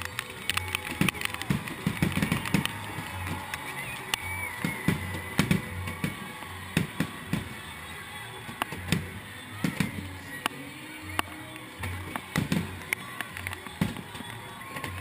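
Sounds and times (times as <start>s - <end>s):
fireworks bursting: 0.0s - 10.6s, 11.2s - 15.0s
music playing: 0.0s - 15.0s.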